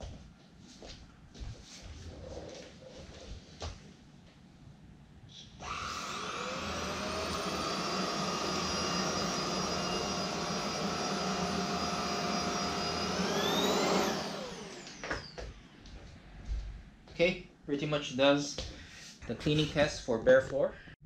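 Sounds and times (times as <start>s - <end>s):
vacuum sucking up oats: 5.6s - 15.0s
stick vacuum motor whine: 5.6s - 16.1s.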